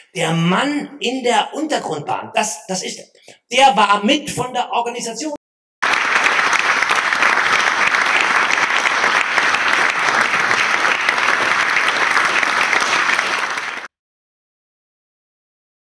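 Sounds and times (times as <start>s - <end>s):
audience applauding: 5.8s - 13.9s.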